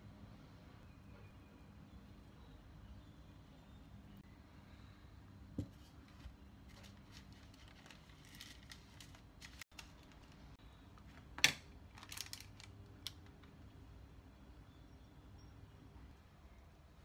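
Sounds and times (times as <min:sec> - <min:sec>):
parchment paper rustling: 0:05.6 - 0:13.1.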